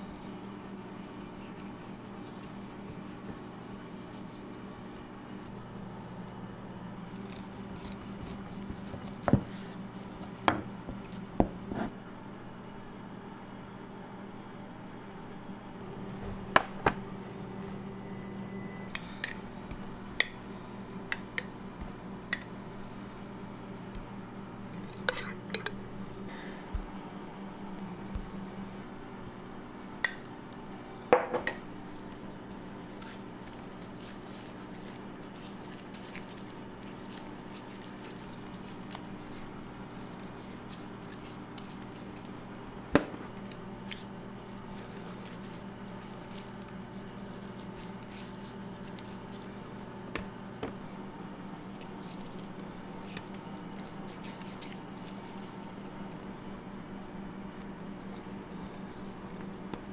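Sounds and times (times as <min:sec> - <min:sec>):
meat squishing under hands: 0:00.0 - 0:06.4, 0:07.0 - 0:11.4, 0:31.8 - 0:59.9
steady kitchen hum: 0:00.0 - 0:59.9.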